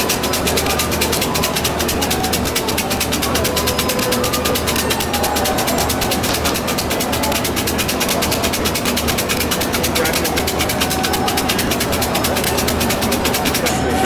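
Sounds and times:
murmur of voices: 0.0s - 14.0s
sticks rattling in cylinders: 0.0s - 14.0s.

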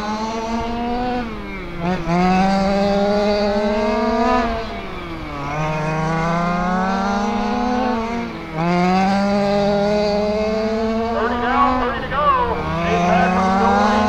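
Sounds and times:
rc car engines racing: 0.7s - 14.0s.

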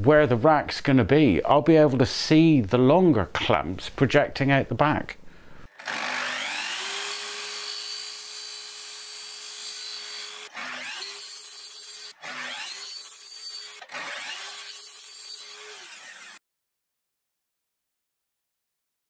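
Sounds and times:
mitre saw whining: 5.7s - 16.4s.

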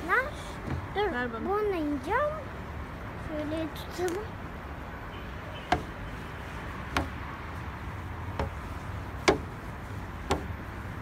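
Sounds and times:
footsteps on metal stairs: 5.7s - 6.0s, 6.8s - 7.3s, 8.3s - 8.6s, 9.2s - 9.6s, 10.2s - 10.6s.

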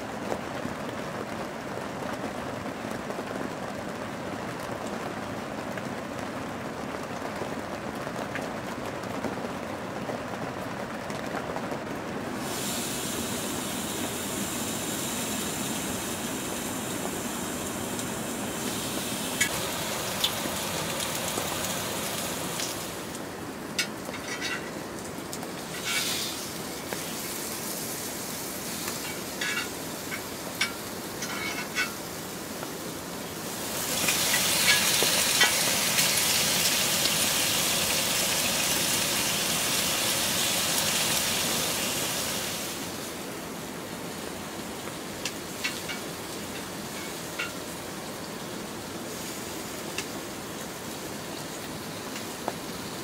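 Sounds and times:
rain on a tent: 0.0s - 53.0s
meat sizzling on grill pan: 12.4s - 23.2s, 23.8s - 32.7s, 33.3s - 43.1s, 44.8s - 47.8s, 49.1s - 53.0s
tongs clicking on pan: 28.9s - 32.0s, 46.6s - 47.6s.

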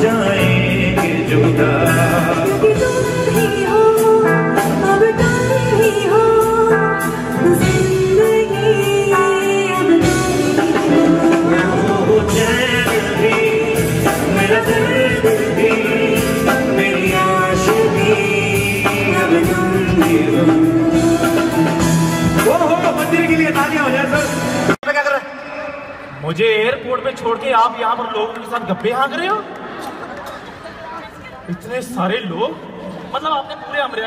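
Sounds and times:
person singing into microphone: 0.0s - 24.2s
musical accompaniment: 0.0s - 25.4s.

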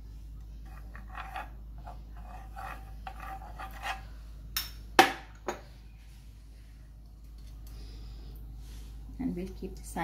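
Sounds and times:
spoon scraping frying pan: 0.6s - 4.1s.

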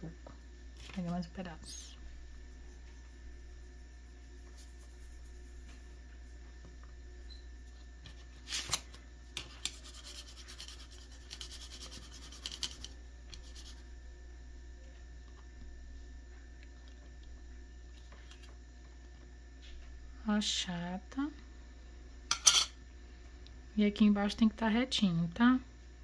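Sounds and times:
soft scratchy rubbing of clay: 0.8s - 6.6s, 9.6s - 13.9s.

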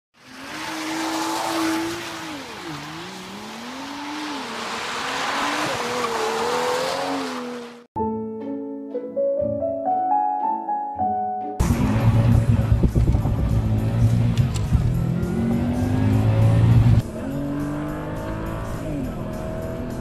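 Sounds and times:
piano music: 8.0s - 12.2s
car engine accelerating: 11.6s - 20.0s.

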